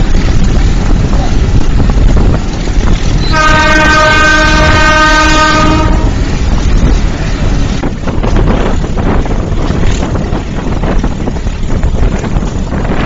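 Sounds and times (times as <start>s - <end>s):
train running noise: 0.0s - 13.0s
wind buffeting microphone: 0.0s - 13.0s
locomotive horn blast: 3.2s - 6.2s.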